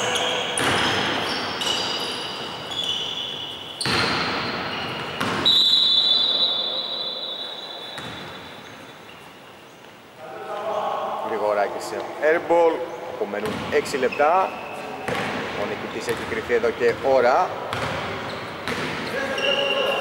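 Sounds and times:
sneakers squeaking: 0.0 - 20.0
ball bouncing on wooden court: 0.6 - 1.9, 3.8 - 5.5, 8.0 - 8.4, 13.4 - 14.1, 15.0 - 17.1, 17.7 - 19.1.

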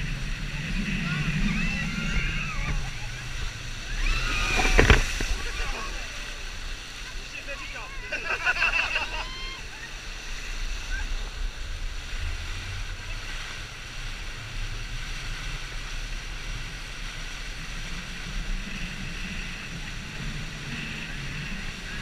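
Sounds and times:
steady low drone: 0.0 - 8.9
water rushing and spraying: 0.0 - 22.0
wind buffeting microphone: 0.0 - 22.0.

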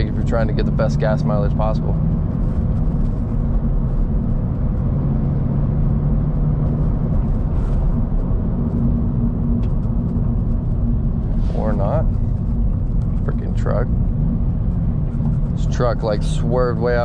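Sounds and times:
car engine at low revs: 0.0 - 17.0
road rumble: 0.0 - 17.0.

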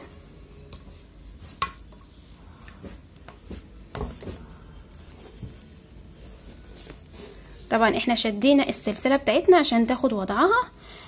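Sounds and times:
soft taps and rustles of yarn: 0.0 - 8.0.

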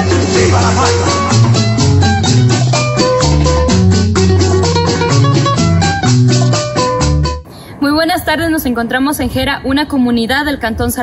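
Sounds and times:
bass line: 0.0 - 7.4
fast beat: 0.0 - 7.4
plucked string notes: 0.0 - 7.4.

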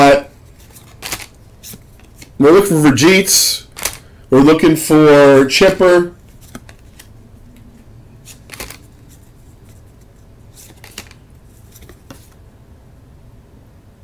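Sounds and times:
low steady hum: 0.0 - 14.0
cards flicking and swishing: 0.6 - 2.3, 8.2 - 12.4.

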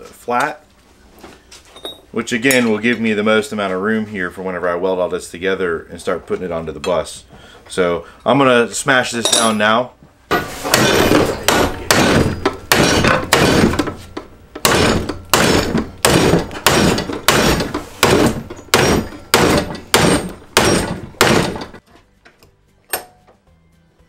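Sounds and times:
hammer striking metal: 10.3 - 14.0, 14.6 - 21.8, 22.9 - 23.3.

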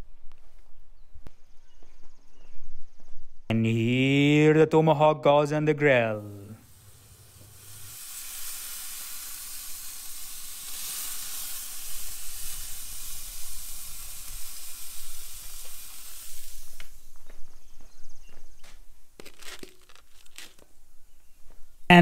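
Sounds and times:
steak sizzling on grill: 6.7 - 17.2.

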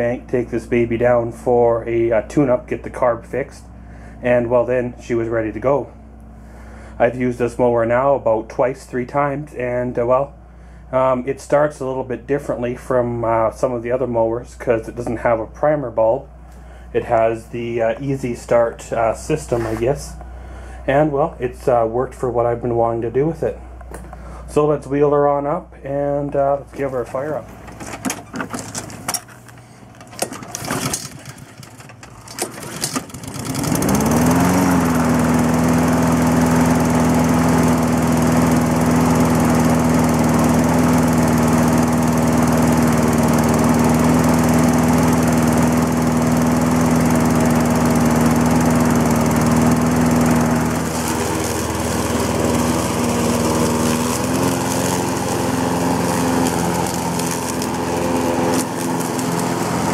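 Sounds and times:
lawn mower engine running: 0.0 - 59.9
clicks and rattles: 27.6 - 33.4.

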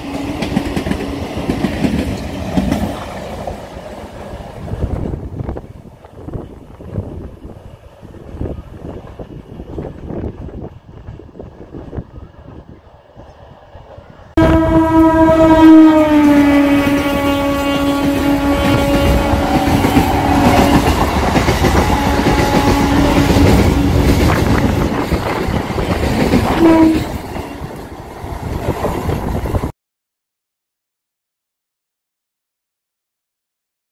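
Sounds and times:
train wheel clatter: 0.0 - 3.6, 17.8 - 29.7
train rushing past: 0.0 - 29.7
train horn blast: 14.4 - 21.1, 21.8 - 24.1, 26.4 - 27.2.

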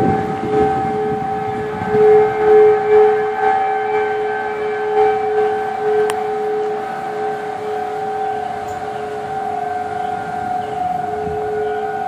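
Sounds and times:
tornado warning sirens: 0.0 - 12.0.

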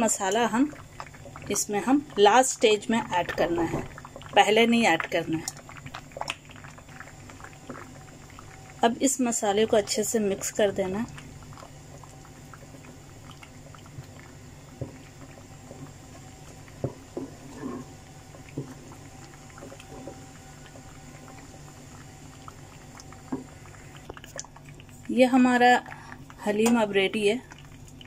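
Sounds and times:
steady low hum: 0.0 - 28.0
spoon stirring thick paste: 14.7 - 21.3.

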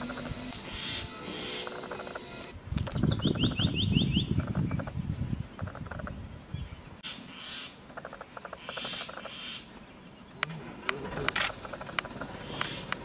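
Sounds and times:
birds chattering in clicking trills: 0.0 - 6.2, 7.0 - 13.0
sharp clicks: 10.4 - 13.0.

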